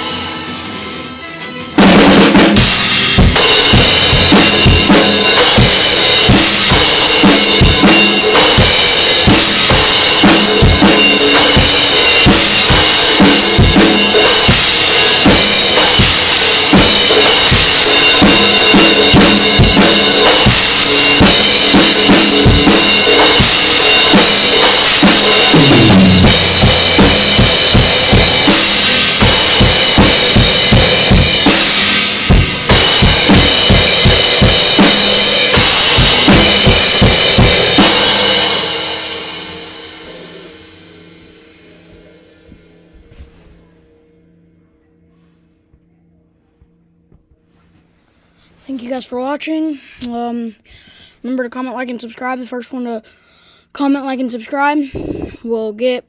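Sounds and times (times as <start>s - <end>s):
bass drum and snare strokes: 1.8s - 38.7s
crash and ride cymbals: 2.5s - 42.8s.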